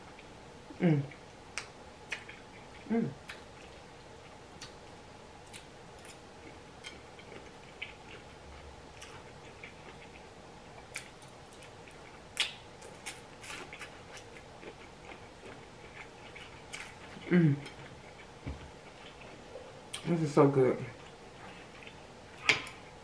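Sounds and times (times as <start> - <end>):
wet chewing and lip smacks: 8.9 - 17.2.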